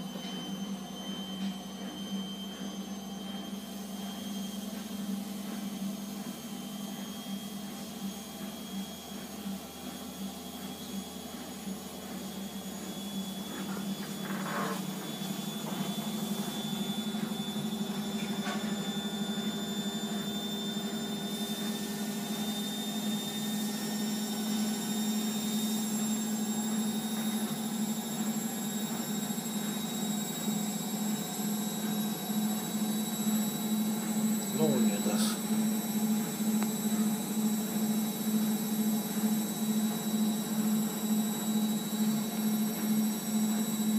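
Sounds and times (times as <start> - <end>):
high-pitched whine: 12.4 - 41.0
steady low hum: 31.2 - 39.3.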